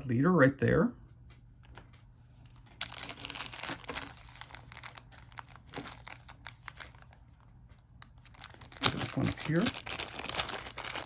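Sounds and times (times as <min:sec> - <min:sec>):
plastic packaging crinkling: 0:02.5 - 0:11.0.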